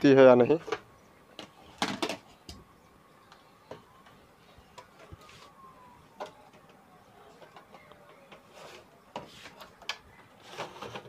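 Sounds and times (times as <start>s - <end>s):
thin tone gliding downward: 2.4s - 9.1s.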